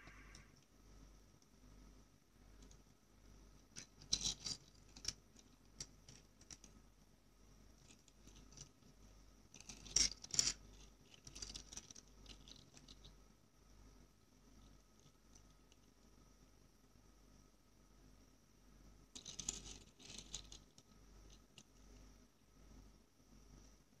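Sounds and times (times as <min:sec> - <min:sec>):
toy cars clicking and scraping: 0:03.6 - 0:06.8, 0:07.8 - 0:13.2, 0:19.2 - 0:22.1.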